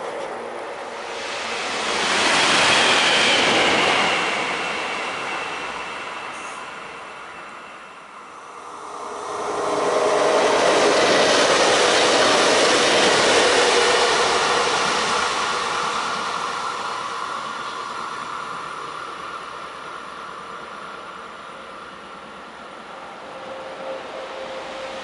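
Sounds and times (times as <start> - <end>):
diesel railcar passing: 0.0 - 25.0.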